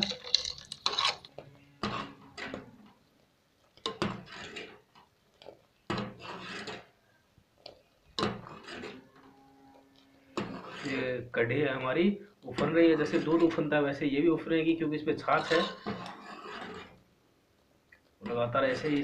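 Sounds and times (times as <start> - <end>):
metal spoon scraping a pot: 0.0 - 2.9, 3.8 - 4.9, 5.9 - 7.0, 8.2 - 11.2, 12.5 - 13.7, 15.2 - 17.0.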